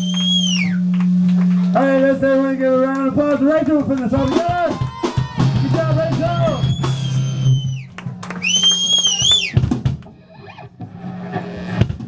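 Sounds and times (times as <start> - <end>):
low bass hum from amplifiers: 0.0 - 12.0
drum hits: 4.1 - 7.7, 9.5 - 10.1
high-pitched whining tones: 4.2 - 9.6.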